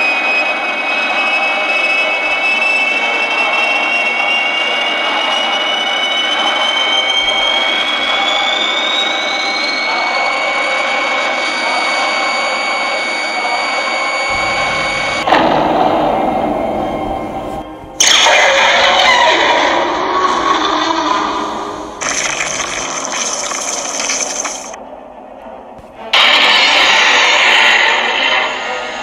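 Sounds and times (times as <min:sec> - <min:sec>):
jet engine rushing and whistling: 0:00.0 - 0:24.8
harsh loud burst: 0:14.3 - 0:19.9, 0:21.4 - 0:24.8.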